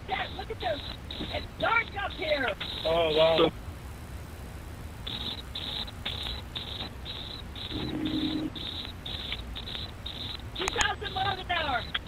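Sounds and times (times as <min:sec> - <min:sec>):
steady low hum: 0:00.0 - 0:12.0
low steady tone: 0:05.0 - 0:12.0
short high chirps: 0:05.1 - 0:12.0.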